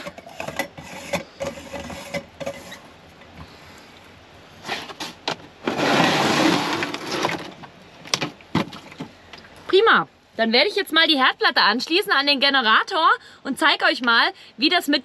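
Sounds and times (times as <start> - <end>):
dense rustling and scraping: 0.0 - 9.3.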